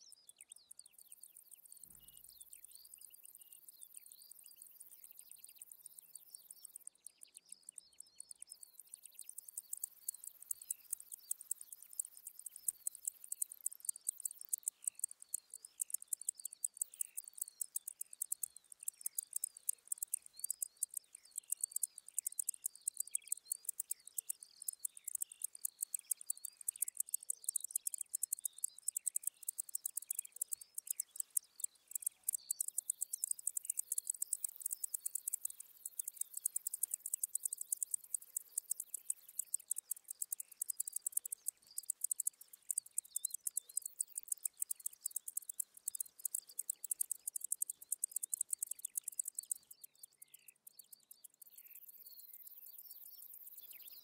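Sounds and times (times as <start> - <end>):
bush-cricket stridulating: 0.9 - 54.0.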